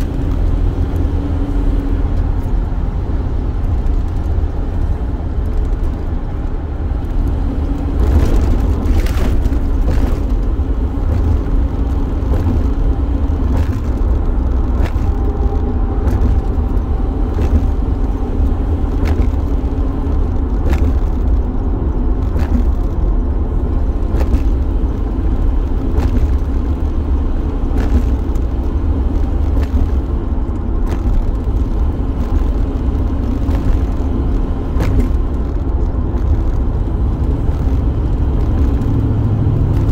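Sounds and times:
van road and engine rumble: 0:00.0 - 0:39.9.

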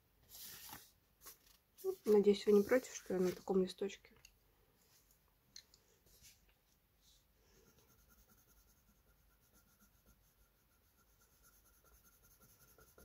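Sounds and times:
pencil scribbling on paper: 0:07.7 - 0:13.0.

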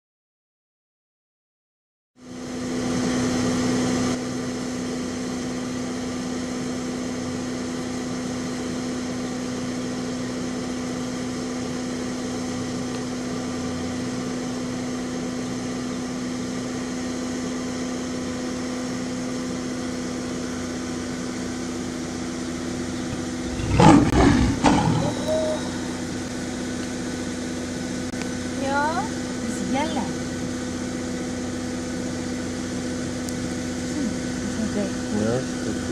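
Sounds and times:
idling vehicle engine hum: 0:02.2 - 0:35.9
lions growling and snarling: 0:23.1 - 0:26.0.

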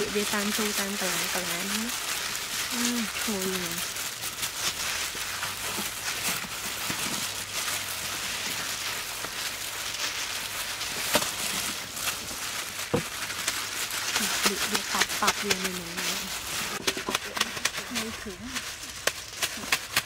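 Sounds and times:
gloved hands rubbing wet marinade: 0:00.0 - 0:20.0.

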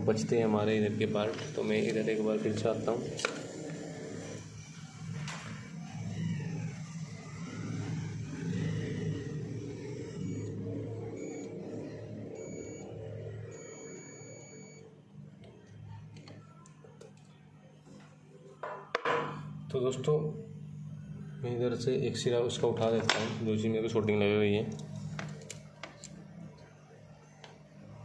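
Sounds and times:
steady low hum: 0:00.0 - 0:28.0
multimeter continuity beeps: 0:08.3 - 0:14.9, 0:26.7 - 0:28.0.

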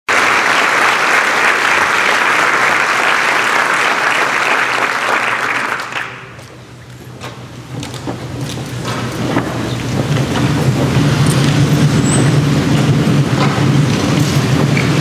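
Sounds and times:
large audience applauding: 0:00.1 - 0:06.4.

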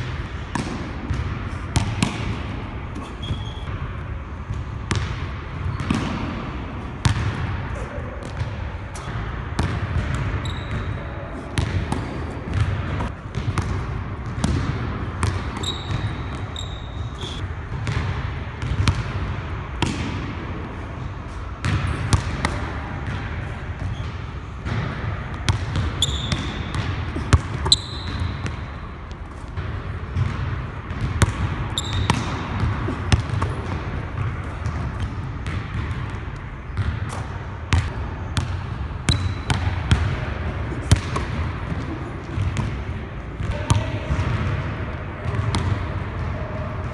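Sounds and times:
sneakers squealing on wood: 0:03.0 - 0:03.7, 0:10.4 - 0:11.1, 0:15.6 - 0:17.4, 0:26.0 - 0:26.6, 0:27.6 - 0:28.3, 0:31.8 - 0:32.2.

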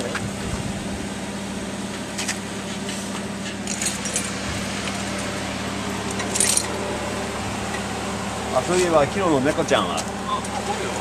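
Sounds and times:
metallic clinks of hooks: 0:06.3 - 0:06.7.

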